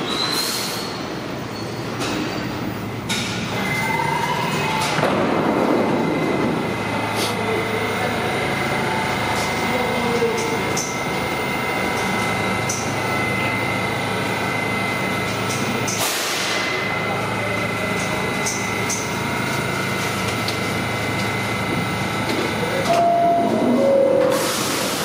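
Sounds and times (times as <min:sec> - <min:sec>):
subway car equipment humming: 0:00.0 - 0:25.0
thin high whine: 0:22.6 - 0:25.0.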